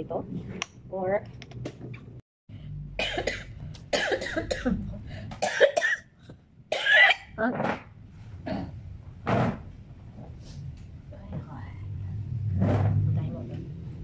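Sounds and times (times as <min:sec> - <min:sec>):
woman coughing: 0:03.0 - 0:04.8, 0:05.4 - 0:06.1, 0:06.7 - 0:07.3.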